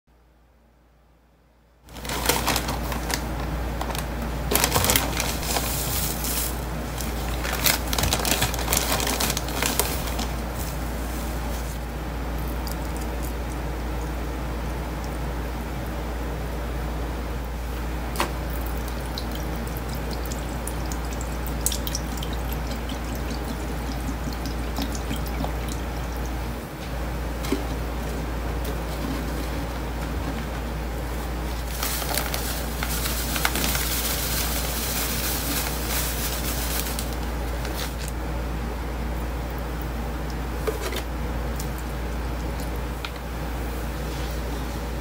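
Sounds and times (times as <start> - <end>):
drips and splats: 18.2 - 26.4
powder pouring hiss: 31.7 - 37.2.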